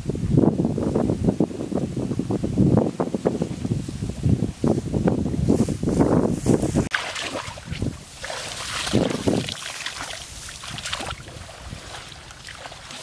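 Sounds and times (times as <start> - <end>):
grass and plants rustling: 2.2 - 13.0
shallow water splashing: 6.9 - 13.0.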